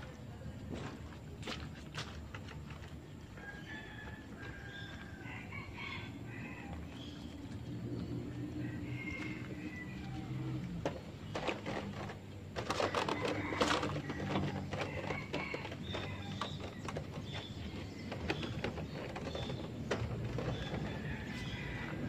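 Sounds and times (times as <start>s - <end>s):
small birds chirping: 15.8s - 21.8s.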